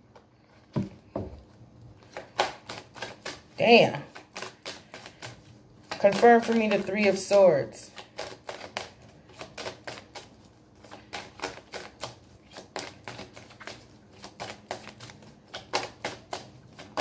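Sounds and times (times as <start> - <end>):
cards being shuffled: 2.0 - 17.0.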